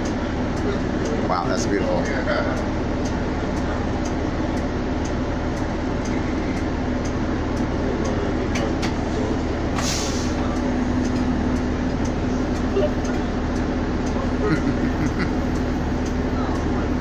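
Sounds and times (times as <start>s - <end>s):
bus engine hum and rumble: 0.0s - 17.0s
short sharp hiss: 9.8s - 10.4s.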